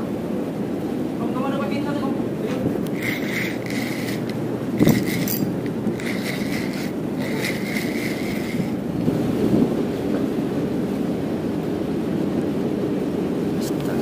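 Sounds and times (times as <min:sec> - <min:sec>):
steady low rumble: 0:02.2 - 0:14.0
fishing reel gears whirring: 0:02.8 - 0:08.9.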